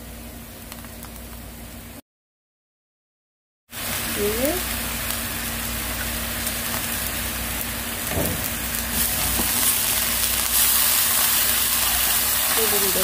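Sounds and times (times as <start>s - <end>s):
liquid sizzling in frying pan: 3.8s - 13.0s
spoon stirring in pan: 10.5s - 13.0s.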